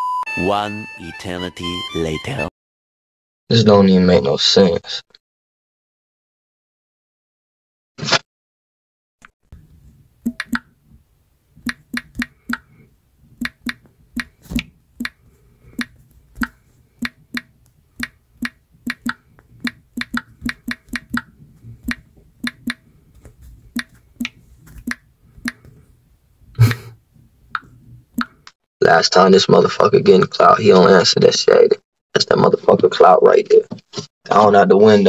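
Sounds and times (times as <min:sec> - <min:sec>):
taps on touchscreen keyboard: 0:10.3 - 0:10.7, 0:11.6 - 0:12.7, 0:13.4 - 0:15.2, 0:15.8 - 0:22.8, 0:23.8 - 0:25.7.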